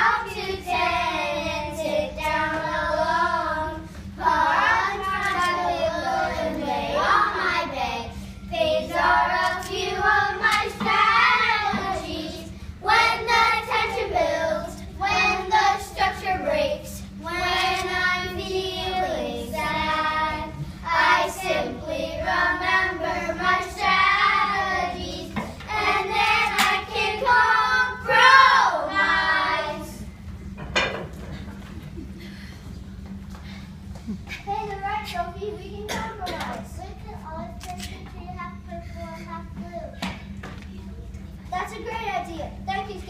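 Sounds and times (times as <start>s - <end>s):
children singing together: 0.0s - 30.1s.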